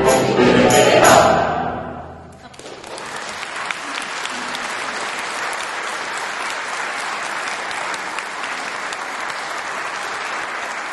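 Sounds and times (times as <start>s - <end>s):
audience applauding: 2.4s - 10.9s.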